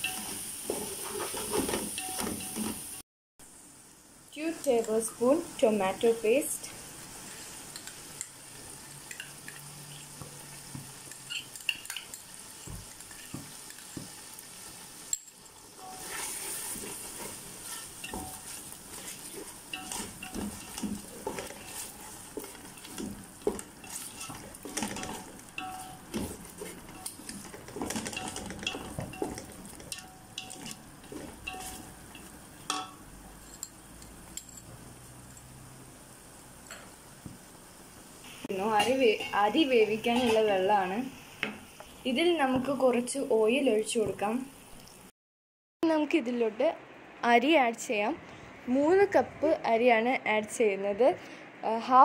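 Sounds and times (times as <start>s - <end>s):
spatula scraping metal pot: 0.0s - 2.8s, 15.8s - 32.3s
frying sizzle: 0.0s - 45.1s.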